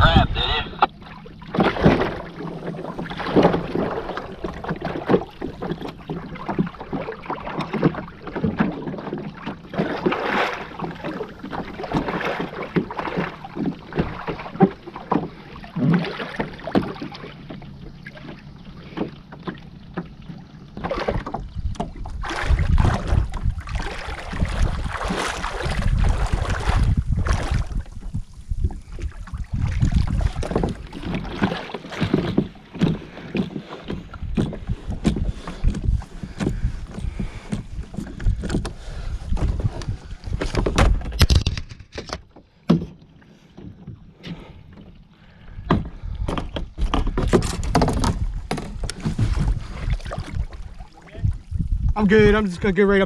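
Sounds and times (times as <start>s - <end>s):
wind buffeting microphone: 0.0s - 1.0s, 20.9s - 41.7s, 45.4s - 53.0s
water splashing around kayak: 0.0s - 53.0s.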